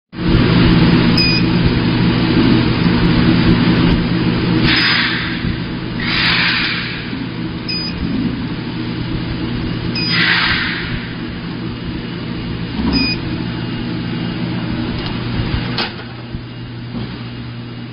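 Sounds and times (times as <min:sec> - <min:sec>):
packaging machine humming: 0:00.2 - 0:17.9
short high beeps: 0:01.2 - 0:01.5, 0:07.7 - 0:08.0, 0:10.0 - 0:10.4, 0:12.9 - 0:13.2.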